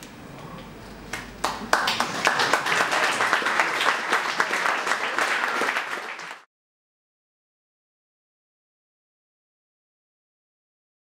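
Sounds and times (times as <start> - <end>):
audience applauding: 1.1 - 6.5.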